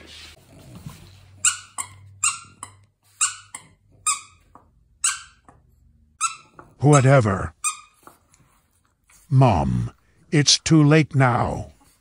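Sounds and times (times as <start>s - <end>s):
dog toy squeaking: 1.4s - 8.2s.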